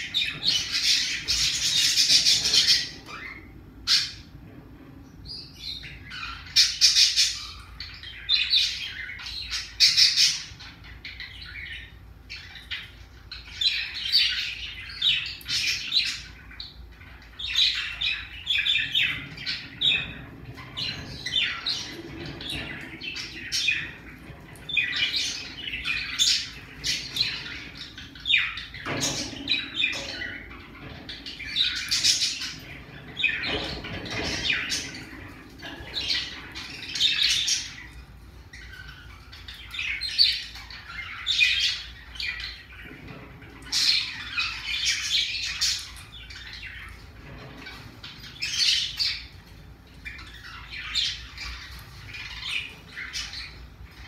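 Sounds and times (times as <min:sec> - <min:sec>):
parrotlet chirping and squawking: 0:00.0 - 0:04.3.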